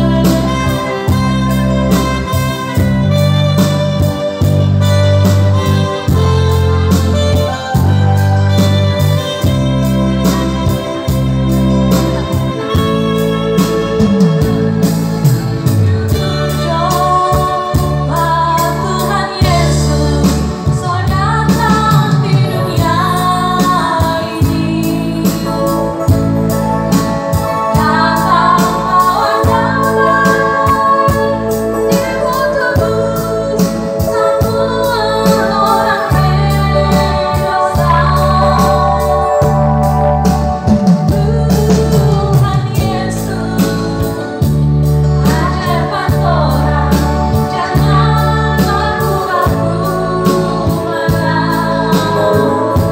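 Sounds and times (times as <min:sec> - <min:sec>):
electronic keyboard with drum beat: 0:00.0 - 0:52.9
woman singing into a microphone: 0:00.0 - 0:52.9.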